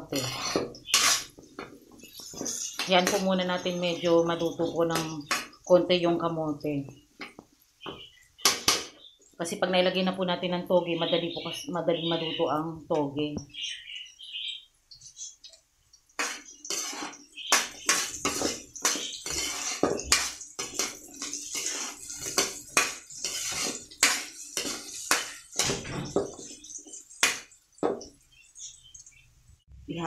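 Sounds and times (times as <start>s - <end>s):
metal spatula scraping pan: 0.0s - 5.6s, 16.2s - 27.5s
frying sizzle: 0.0s - 10.3s, 10.9s - 30.0s.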